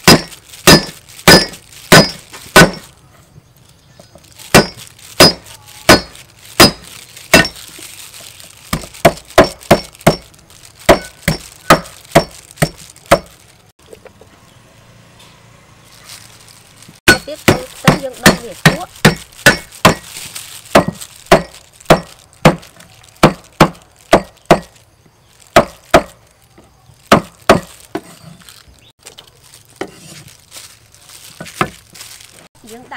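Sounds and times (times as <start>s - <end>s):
cleaver chopping on wooden block: 0.0s - 2.8s, 4.5s - 7.6s, 8.7s - 10.2s, 10.9s - 13.3s, 17.1s - 20.1s, 20.8s - 24.7s, 25.6s - 26.2s, 27.1s - 28.1s.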